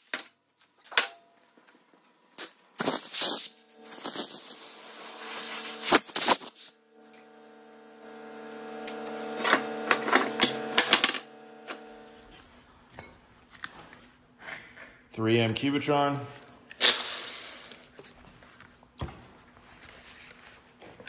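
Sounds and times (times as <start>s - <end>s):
hiss: 2.4s - 6.8s
angle grinder motor whine: 3.6s - 6.1s, 6.7s - 12.4s.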